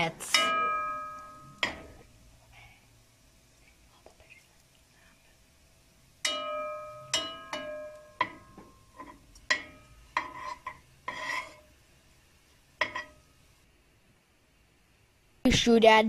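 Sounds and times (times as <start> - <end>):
food sauteing: 0.0 - 3.9, 4.5 - 13.7
metal spoon scraping a pan: 6.3 - 11.8, 12.8 - 13.3.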